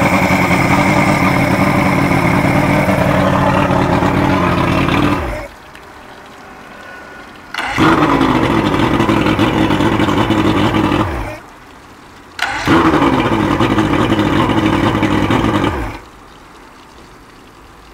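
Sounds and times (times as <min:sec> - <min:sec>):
outboard motor revving: 0:00.0 - 0:05.7, 0:07.3 - 0:11.5, 0:12.4 - 0:16.2.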